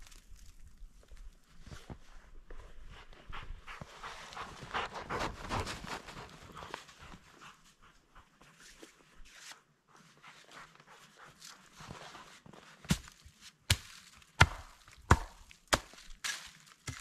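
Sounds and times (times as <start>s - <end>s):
footsteps crunching in snow: 0.0s - 7.2s
axe chopping wood: 12.9s - 17.0s.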